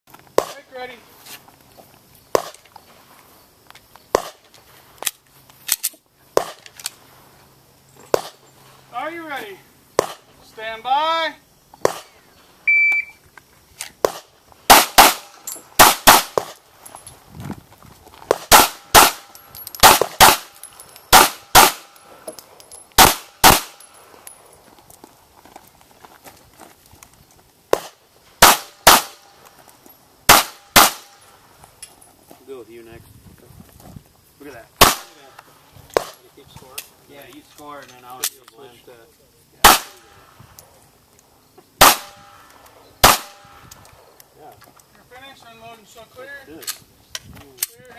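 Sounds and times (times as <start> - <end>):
sharp crack: 0.3 - 0.6, 4.1 - 7.0, 10.0 - 10.3, 11.8 - 12.2, 13.8 - 16.6, 18.2 - 22.0, 22.9 - 23.9, 27.7 - 29.4, 30.3 - 31.2, 34.8 - 36.9, 39.6 - 40.1, 41.8 - 43.9
gunshots: 10.0 - 10.2, 14.0 - 16.6, 18.3 - 20.5, 21.1 - 21.9, 23.0 - 23.8, 27.8 - 29.3, 30.3 - 31.2, 34.8 - 35.3, 39.6 - 40.1, 41.8 - 42.4, 43.0 - 43.6
pistol shots: 10.0 - 10.2, 14.0 - 16.6, 18.3 - 22.0, 23.0 - 23.9, 27.7 - 29.3, 30.3 - 31.2, 34.8 - 35.3, 39.6 - 40.1, 41.8 - 42.4, 43.0 - 43.7.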